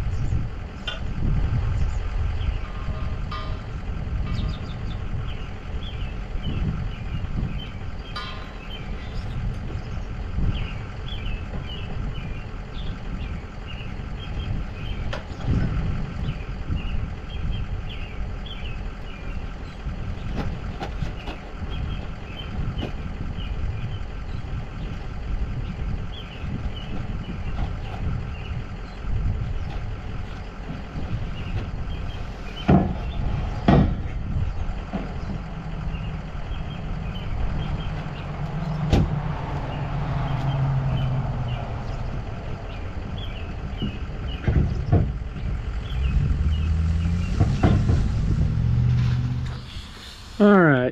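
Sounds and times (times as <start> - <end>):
truck engine rumbling: 0.0 - 50.9
sharp thumps: 30.6 - 35.4, 37.7 - 39.8, 46.8 - 50.4.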